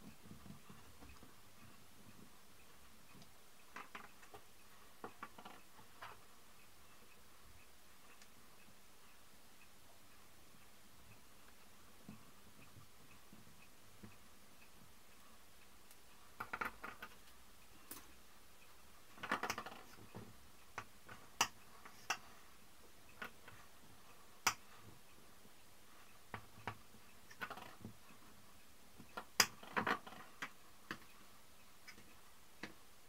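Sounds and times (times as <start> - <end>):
small clicks and taps: 0.0 - 6.3, 15.8 - 18.2, 19.1 - 22.4, 24.4 - 25.0, 29.0 - 31.2, 31.8 - 32.8.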